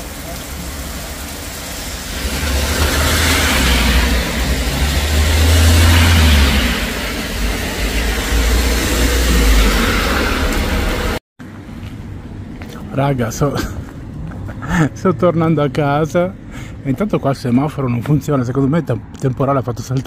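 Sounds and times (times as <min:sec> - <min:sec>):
tyres hissing through water: 0:00.0 - 0:11.2.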